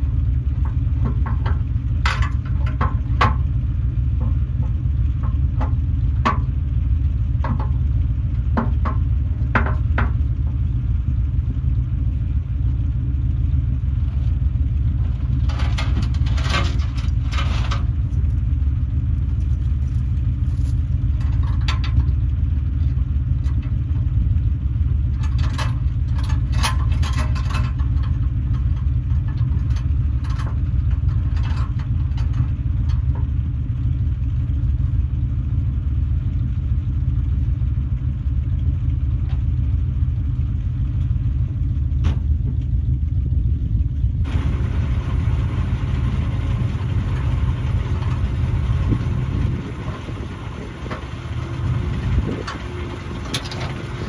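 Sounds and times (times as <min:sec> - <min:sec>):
rattles and knocks: 0:00.0 - 0:10.7, 0:14.0 - 0:24.2, 0:24.9 - 0:35.0, 0:41.8 - 0:43.0, 0:46.2 - 0:54.0
truck engine rumbling: 0:00.0 - 0:54.0.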